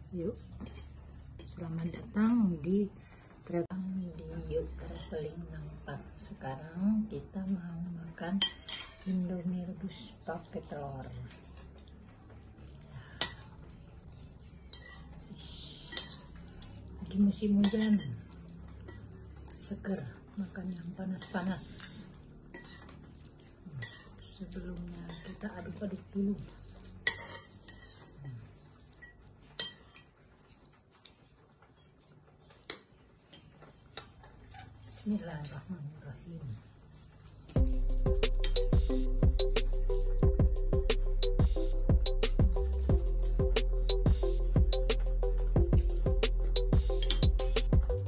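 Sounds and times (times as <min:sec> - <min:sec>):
spoon and fork stirring noodles: 0:00.4 - 0:02.0, 0:08.4 - 0:09.3, 0:10.0 - 0:34.8, 0:43.9 - 0:48.0
cutlery clinking on ceramic bowl: 0:08.4 - 0:09.2, 0:17.6 - 0:19.4, 0:21.2 - 0:23.1, 0:27.0 - 0:28.4, 0:29.0 - 0:30.2
metal clinking against bowl: 0:08.4 - 0:09.2, 0:27.0 - 0:28.1.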